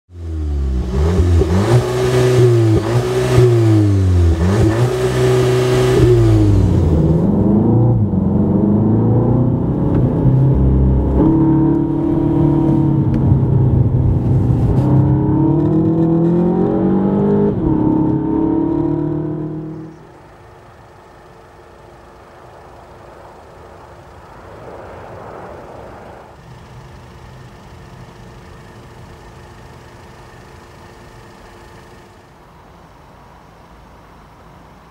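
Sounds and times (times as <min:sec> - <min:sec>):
car engine revving and accelerating: 0:00.1 - 0:20.1
quiet steady engine hum: 0:00.1 - 0:34.9.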